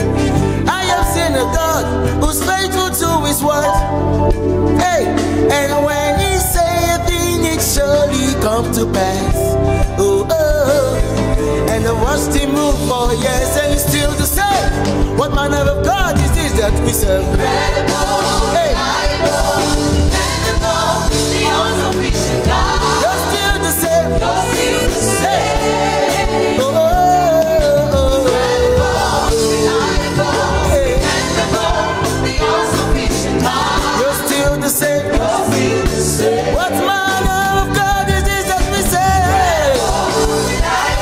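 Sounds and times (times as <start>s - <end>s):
man singing lead: 0.0s - 3.9s, 4.7s - 19.3s, 23.0s - 31.7s, 33.9s - 40.2s
instrumental backing: 0.0s - 41.0s
backing singers: 16.0s - 41.0s.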